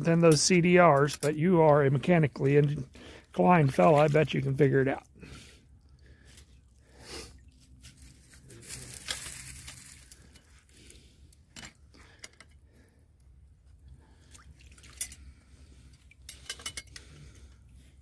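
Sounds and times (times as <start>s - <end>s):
water splashing and dripping: 14.2s - 16.3s
metal trap chain clinking: 16.2s - 17.0s.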